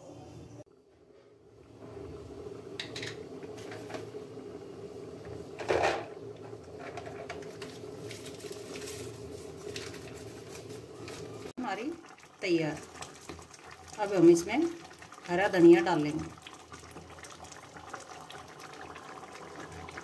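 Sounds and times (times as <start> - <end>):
curry bubbling in a pot: 6.5 - 20.0.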